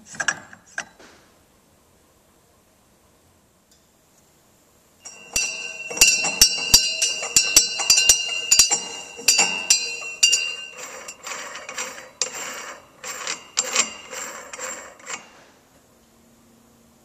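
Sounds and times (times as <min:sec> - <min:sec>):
brass bell tapped by hand: 0:05.1 - 0:10.8.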